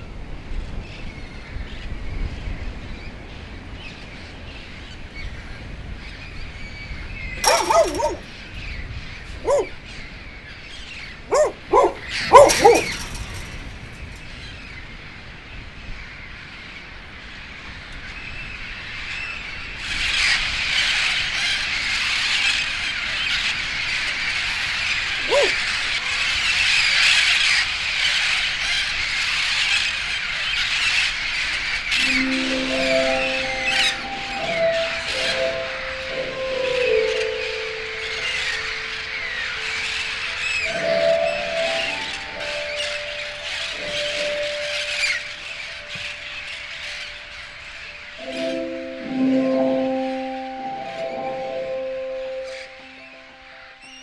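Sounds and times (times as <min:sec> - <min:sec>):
flock of birds chattering: 0:01.0 - 0:14.8, 0:16.3 - 0:54.0
dog barking: 0:07.4 - 0:08.3, 0:09.4 - 0:09.8, 0:11.3 - 0:13.5, 0:25.2 - 0:25.6.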